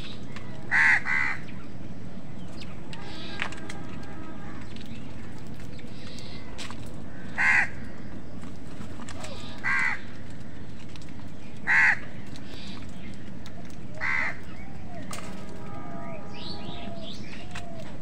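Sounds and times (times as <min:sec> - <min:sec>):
crows cawing: 0:00.6 - 0:01.6, 0:03.0 - 0:08.1, 0:09.1 - 0:11.0, 0:11.6 - 0:15.0.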